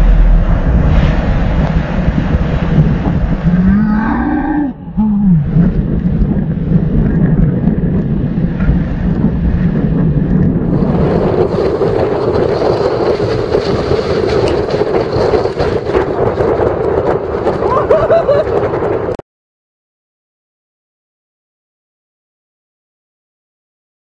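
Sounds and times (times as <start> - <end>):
wind buffeting microphone: 0.0 - 19.2
breaking sea water: 8.7 - 19.2.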